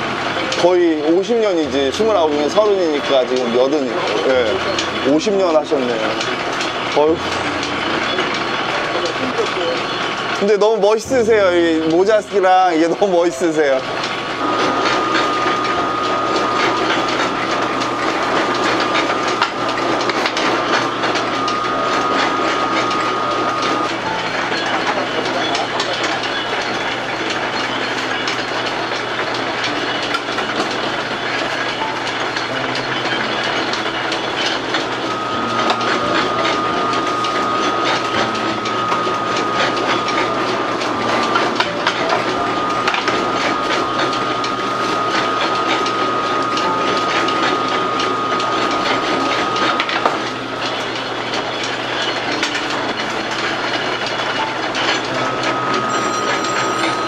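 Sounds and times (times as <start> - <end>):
noodle machine rollers clattering: 0.0 - 57.0
thin high whine: 31.4 - 57.0.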